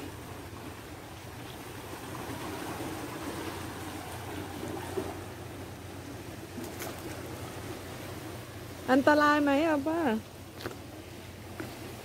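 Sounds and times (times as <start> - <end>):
waves washing against rocks: 0.0 - 10.0.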